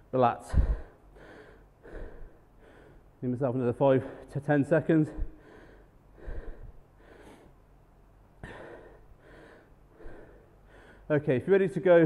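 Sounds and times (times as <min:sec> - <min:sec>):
man breathing hard: 0:00.4 - 0:03.2, 0:05.0 - 0:07.6, 0:08.4 - 0:11.1.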